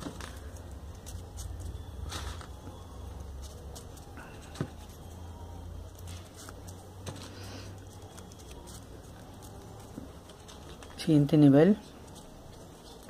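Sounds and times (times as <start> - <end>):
paper pieces rustling and ticking: 5.9 - 11.1.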